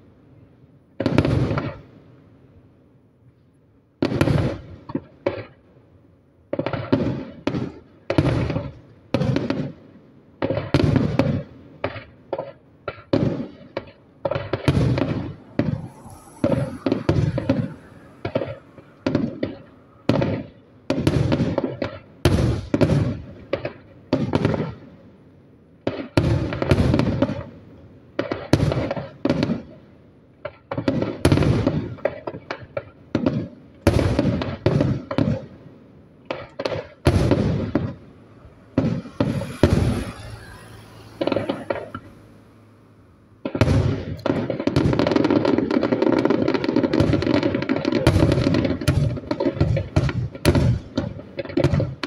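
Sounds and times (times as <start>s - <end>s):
firework shells bursting: 10.4s - 23.8s, 36.2s - 52.0s.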